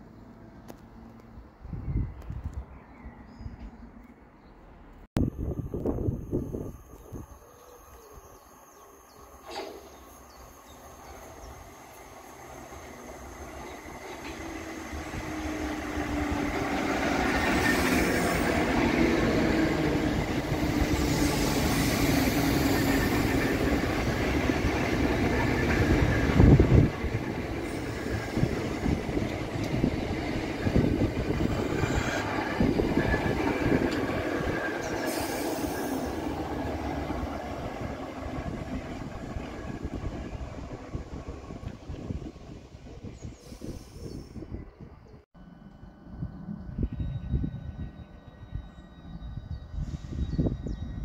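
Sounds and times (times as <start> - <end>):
train motor whine: 5.2 - 42.1.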